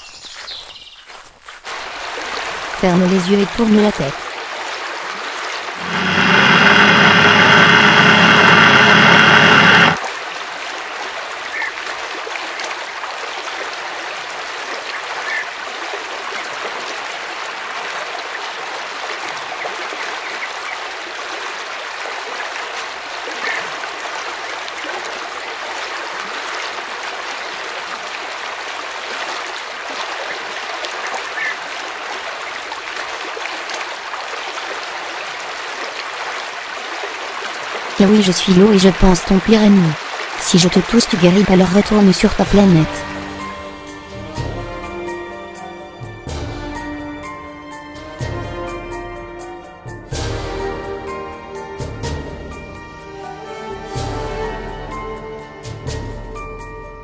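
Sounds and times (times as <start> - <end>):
river water rushing over rapids: 3.8 - 43.4
loud steady pitched hum: 5.8 - 10.0.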